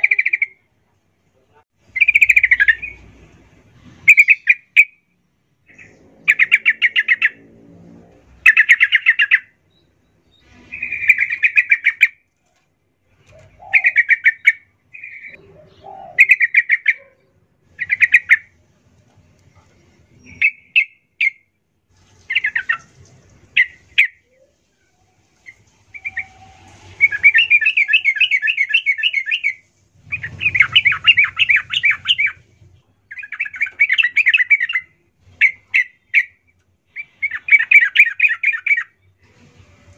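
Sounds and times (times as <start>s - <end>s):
bulbul chattering song: 1.8s - 3.2s, 5.7s - 7.4s, 13.4s - 18.6s, 25.4s - 39.0s.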